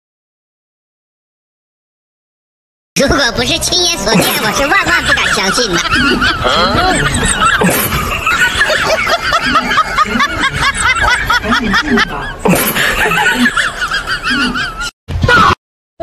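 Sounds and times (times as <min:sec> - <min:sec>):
high-pitched snickering laughter: 0:04.1 - 0:15.6
lower laughs: 0:04.1 - 0:15.6.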